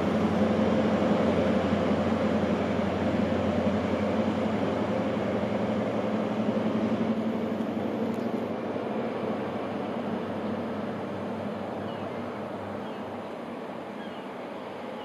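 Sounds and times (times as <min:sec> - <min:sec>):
diesel train engine droning: 0:00.0 - 0:15.0.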